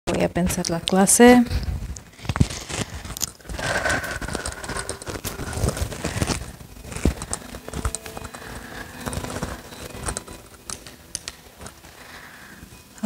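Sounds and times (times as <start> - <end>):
small objects being handled: 0.5 - 13.0.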